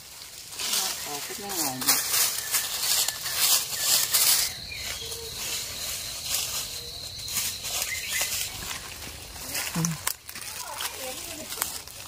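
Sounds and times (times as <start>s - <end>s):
dry leaves crunching underfoot: 0.0s - 12.0s
high-pitched insect drone: 0.6s - 10.1s.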